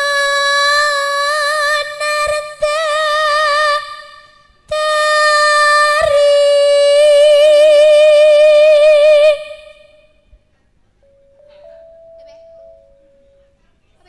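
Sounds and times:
person singing with vibrato: 0:00.0 - 0:10.2
faint musical accompaniment: 0:08.4 - 0:14.0.

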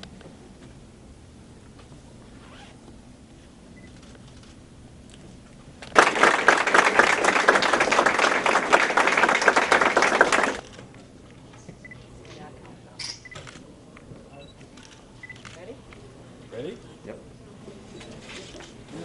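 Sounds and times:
crowd applauding loudly: 0:05.9 - 0:10.6.

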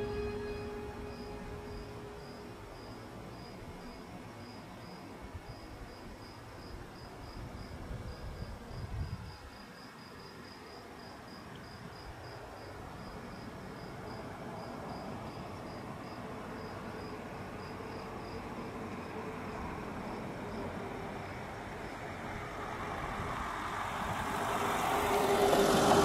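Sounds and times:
vehicle approaching: 0:00.0 - 0:02.8, 0:20.1 - 0:26.0
low road rumble: 0:00.0 - 0:03.7
cricket chirping: 0:00.0 - 0:22.6.

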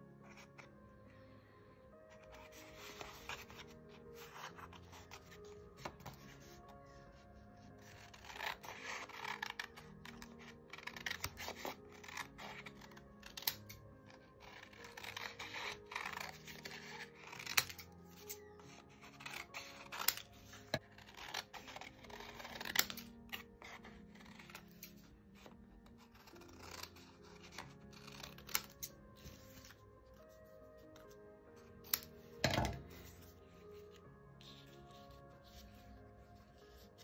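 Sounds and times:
background music: 0:00.0 - 0:37.0
scissors snipping paper: 0:02.2 - 0:06.6, 0:07.8 - 0:29.7.

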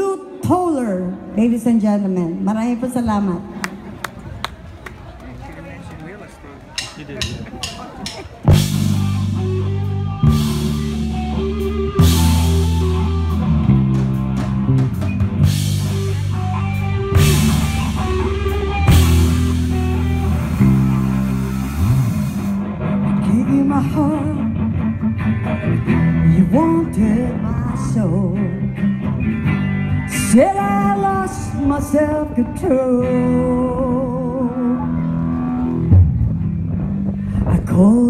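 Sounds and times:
lead guitar note bends: 0:08.5 - 0:26.4
electric guitars power chords: 0:08.5 - 0:38.0.

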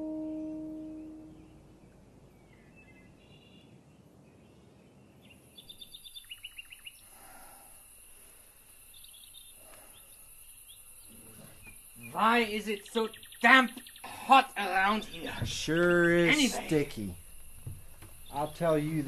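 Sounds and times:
singing bowl tone: 0:00.0 - 0:01.6
bird chirping trills: 0:00.0 - 0:07.1, 0:08.8 - 0:19.0
faint hiss: 0:05.2 - 0:19.0
high insect drone: 0:05.5 - 0:19.0.

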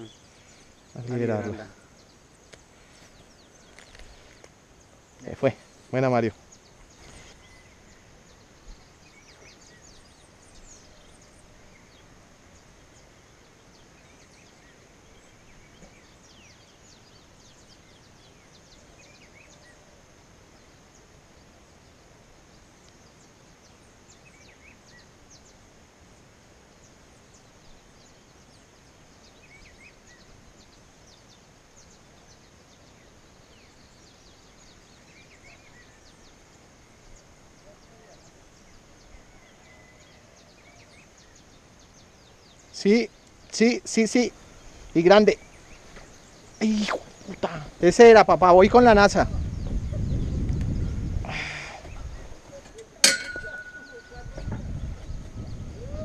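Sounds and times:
short bird chirps: 0:46.5 - 0:47.6.

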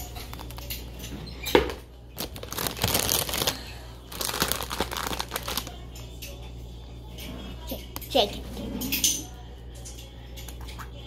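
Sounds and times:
plastic bag crinkling: 0:02.2 - 0:05.8.

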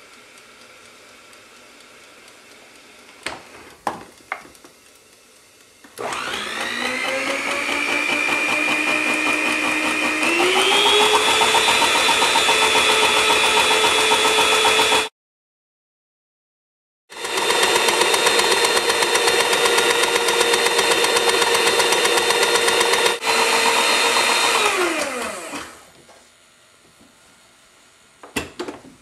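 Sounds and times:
fryer motor whining: 0:05.8 - 0:15.1, 0:17.1 - 0:26.0.

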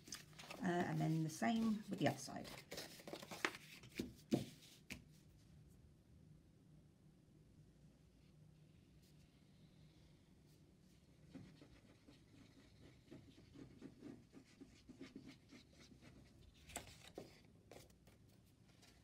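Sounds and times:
card rustling: 0:00.0 - 0:05.0.

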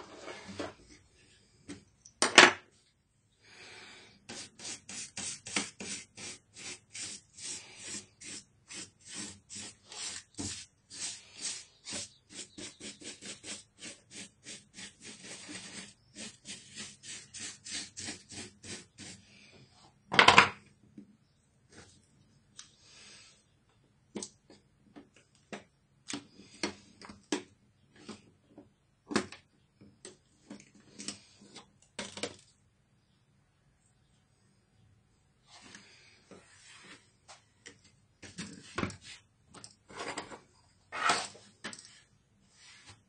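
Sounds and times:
paint brush sweeping plastic: 0:04.3 - 0:19.3, 0:36.4 - 0:37.1, 0:38.3 - 0:39.3, 0:40.9 - 0:43.0.

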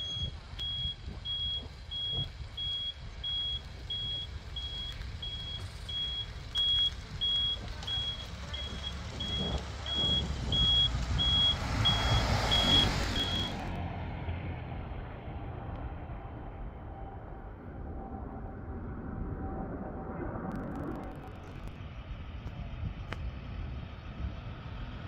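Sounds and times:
reversing alarm beeping: 0:00.0 - 0:13.7
vehicle engine and tyre noise: 0:00.0 - 0:25.0.

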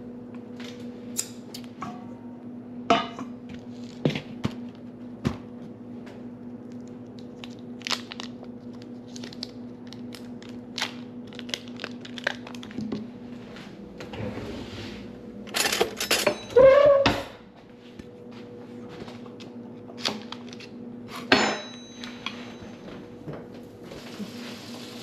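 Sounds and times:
steady low hum: 0:00.0 - 0:24.5
paper wrapper crinkling: 0:06.6 - 0:12.8.

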